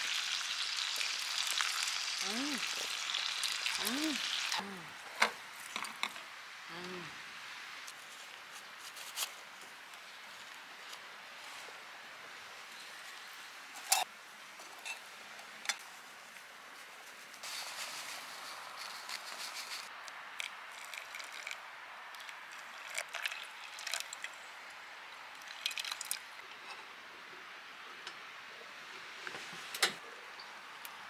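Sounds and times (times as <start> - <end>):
water trickling into coffee filter: 20.7 - 21.6, 22.2 - 24.4, 25.3 - 26.3.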